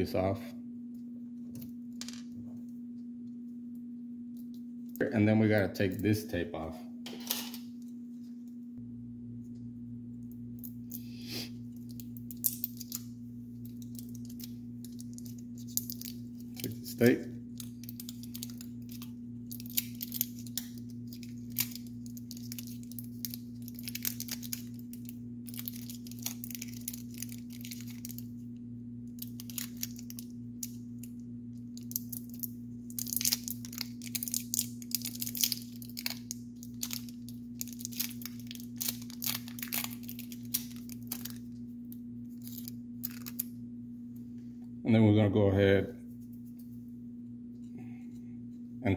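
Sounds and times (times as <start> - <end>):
steady low hum: 0.0 - 48.9
tape tearing and crinkling: 17.5 - 28.2, 31.8 - 41.4.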